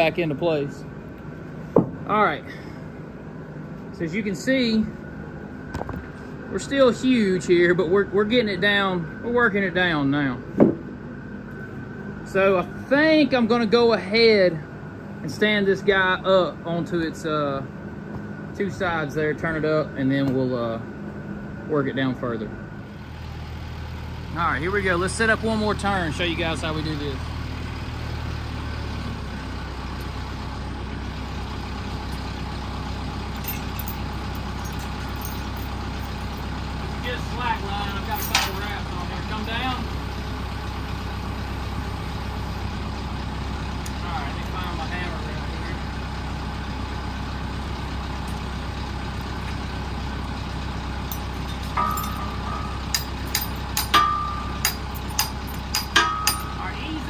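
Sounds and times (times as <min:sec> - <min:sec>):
diesel tractor engine idling: 0:00.0 - 0:57.0
faint metallic clinks: 0:33.4 - 0:36.4, 0:51.1 - 0:56.6.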